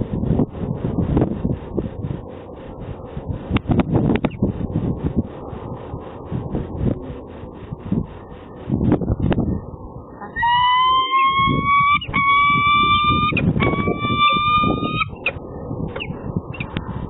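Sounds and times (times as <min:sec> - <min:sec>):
falcon calling: 0:10.2 - 0:15.4.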